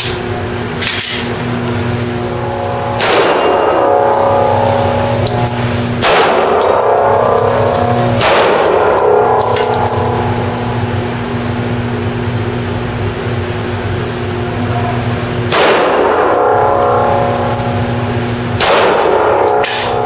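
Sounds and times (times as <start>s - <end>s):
steady low hum: 0.0s - 20.0s
steel plates ringing: 2.2s - 10.9s
pistol shots: 3.0s - 3.6s, 6.0s - 6.7s, 8.2s - 9.2s, 15.5s - 16.2s, 18.6s - 19.9s.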